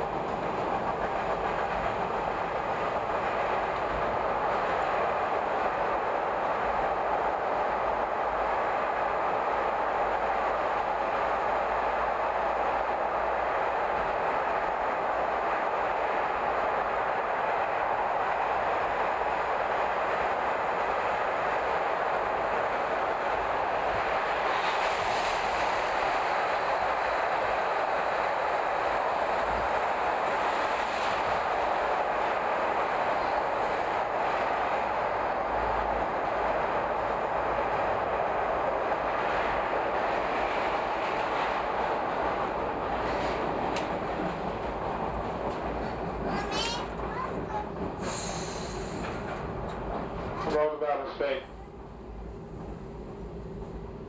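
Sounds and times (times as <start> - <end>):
train wheels on rail: 0.0 - 54.0
high hiss: 48.0 - 49.2.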